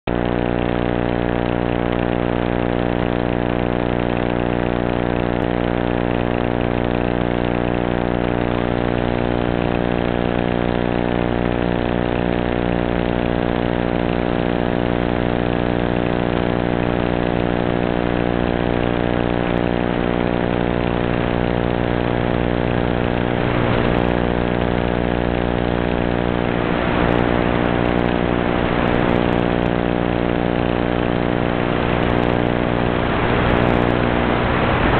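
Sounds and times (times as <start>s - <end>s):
harsh electrical buzz: 0.1s - 34.9s.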